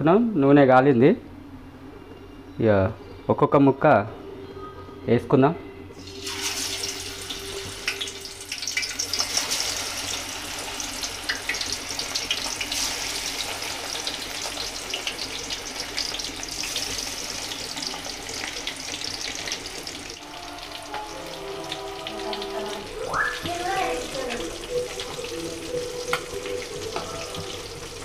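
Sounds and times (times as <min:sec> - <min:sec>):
fish deep-frying in oil: 0:06.0 - 0:28.0.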